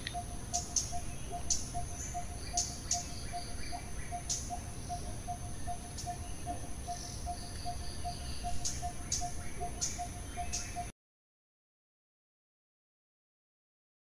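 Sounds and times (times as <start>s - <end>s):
high insect whine: 0.0s - 10.9s.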